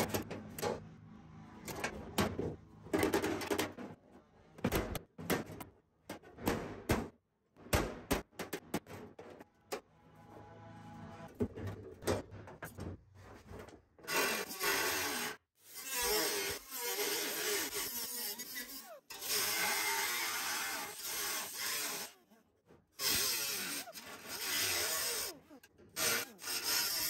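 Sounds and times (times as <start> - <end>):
die grinder grinding sheet steel: 14.1 - 27.0.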